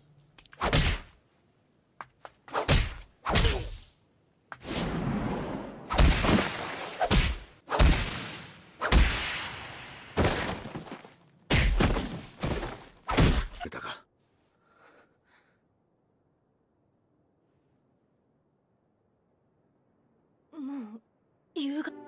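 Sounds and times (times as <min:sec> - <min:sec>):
heavy thuds and whacks: 0:00.6 - 0:01.2, 0:02.3 - 0:03.9, 0:05.9 - 0:09.6, 0:10.2 - 0:13.6.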